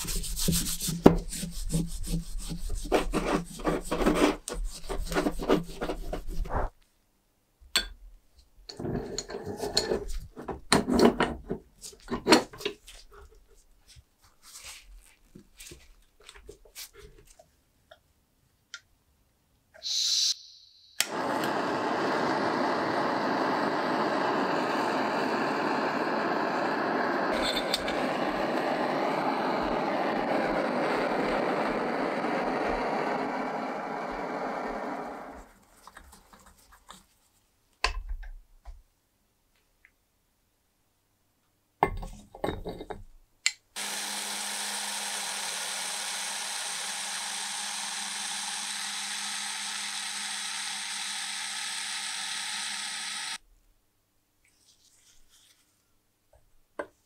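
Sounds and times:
small power tool running: 0:21.0 - 0:35.4, 0:43.8 - 0:53.4
gas torch flame hissing: 0:21.0 - 0:35.6, 0:43.8 - 0:53.4.

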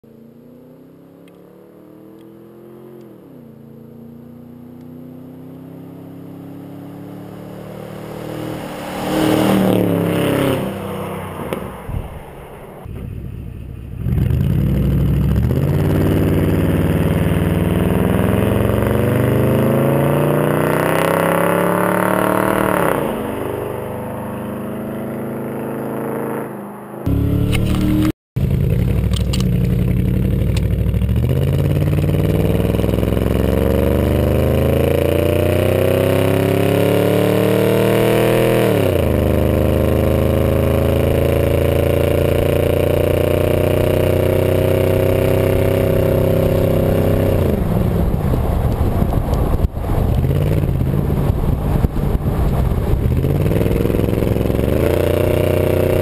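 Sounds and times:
truck engine with straight pipes: 0:00.0 - 0:02.4, 0:27.0 - 0:56.0
truck passing loudly: 0:05.4 - 0:29.0.

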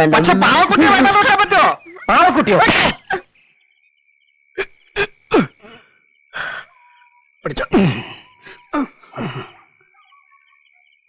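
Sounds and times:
men grunting and gasping: 0:04.6 - 0:06.7, 0:07.6 - 0:09.8.

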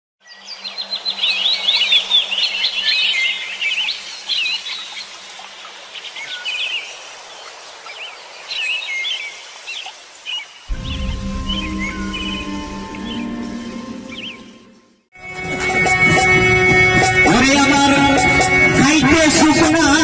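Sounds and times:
birds chirping and singing: 0:00.2 - 0:05.1, 0:10.7 - 0:14.8
music: 0:10.7 - 0:20.0.

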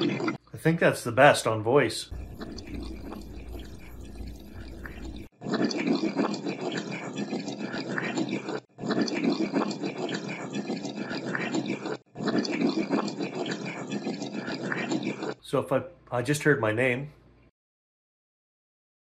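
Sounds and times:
running tap water: 0:02.1 - 0:05.3.

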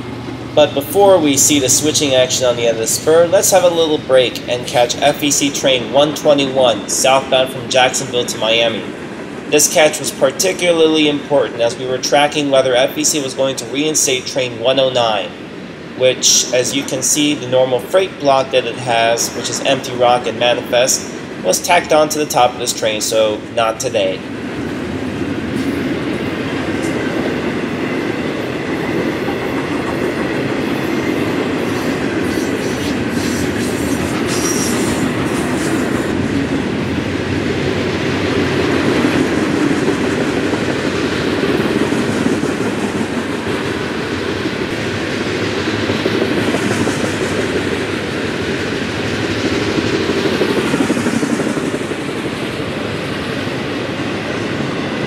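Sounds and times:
freight train rolling past: 0:00.0 - 0:55.0.

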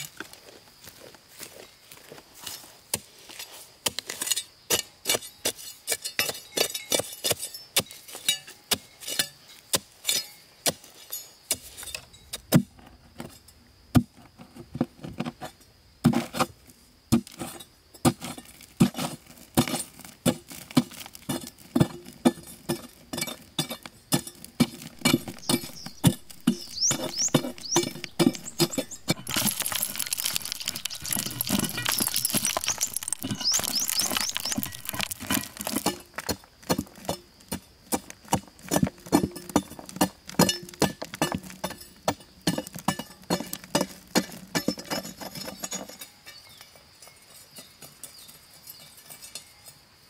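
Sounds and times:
hand tool striking wood: 0:19.6 - 0:37.3.

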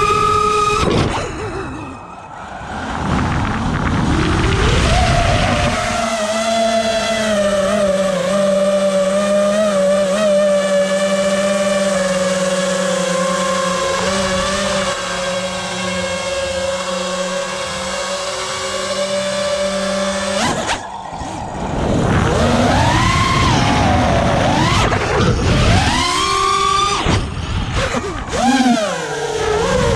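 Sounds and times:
drone motors whining: 0:00.0 - 0:29.9.

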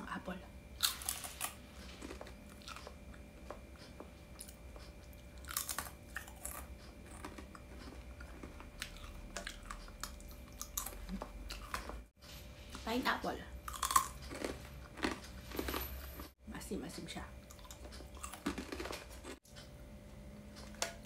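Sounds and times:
crunchy chewing: 0:00.8 - 0:12.1, 0:13.7 - 0:16.4, 0:17.4 - 0:19.7.

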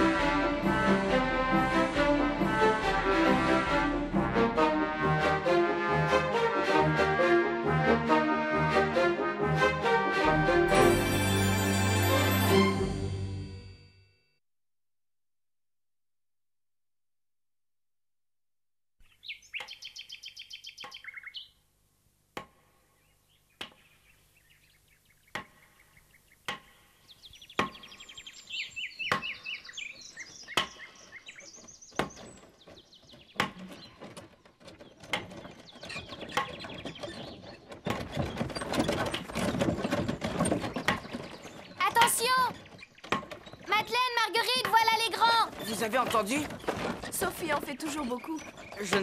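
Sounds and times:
birds twittering: 0:19.0 - 0:21.6, 0:22.8 - 0:49.0
wooden cart rolling: 0:30.0 - 0:49.0.

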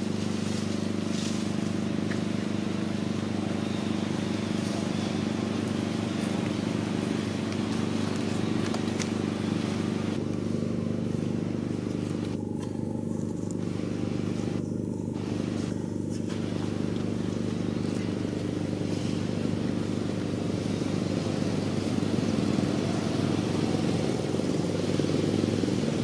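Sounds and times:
low mechanical hum: 0:00.0 - 0:26.0.

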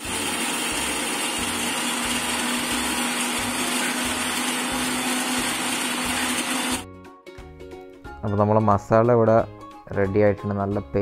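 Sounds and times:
mixer grinder running: 0:00.0 - 0:06.8.

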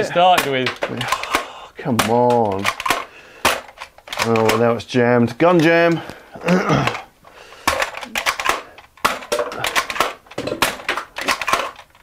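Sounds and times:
toy blaster plastic clicks and rattles: 0:00.4 - 0:04.7, 0:07.6 - 0:12.0.

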